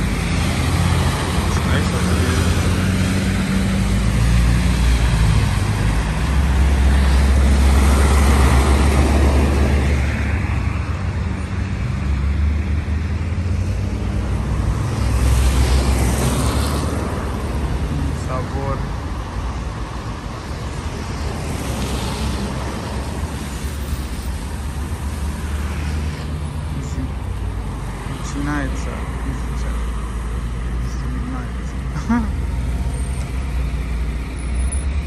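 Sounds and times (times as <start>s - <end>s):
low engine rumble of traffic: 0.0s - 35.0s
vehicles passing by: 0.0s - 35.0s.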